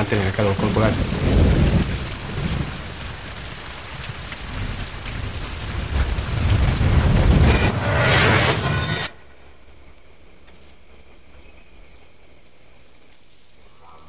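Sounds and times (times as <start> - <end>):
rolling thunder: 0.0 - 9.1
heavy rain: 0.0 - 11.4.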